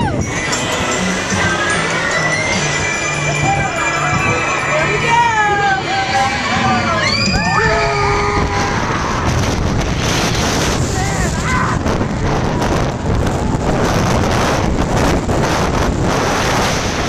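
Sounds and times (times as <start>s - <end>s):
wind buffeting microphone: 0.0s - 1.8s, 3.4s - 17.0s
roller coaster rushing on steel track: 0.0s - 17.0s
riders screaming: 6.1s - 9.3s.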